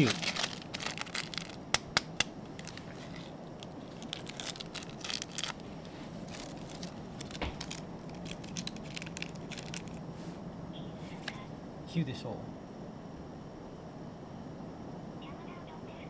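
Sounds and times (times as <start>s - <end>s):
plastic packet crinkling: 0.0s - 10.0s.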